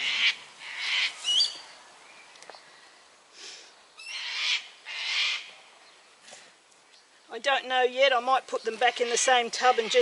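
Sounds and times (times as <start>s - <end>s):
bird chirping: 0.7s - 3.0s.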